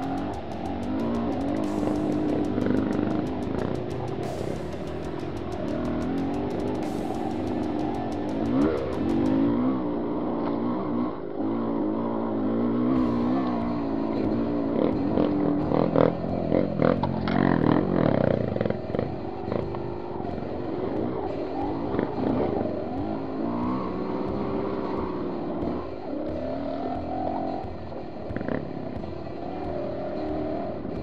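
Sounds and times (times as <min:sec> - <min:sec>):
bike knocking and rattling: 0:00.0 - 0:09.6
dirt bike engine revving: 0:00.0 - 0:31.0.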